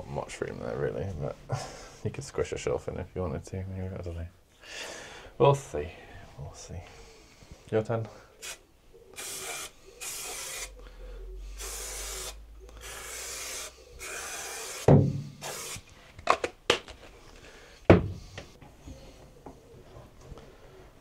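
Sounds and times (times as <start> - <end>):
aerosol spray can hissing: 8.4 - 8.6, 9.2 - 10.8, 11.6 - 15.9
sharp knocks: 14.9 - 15.4.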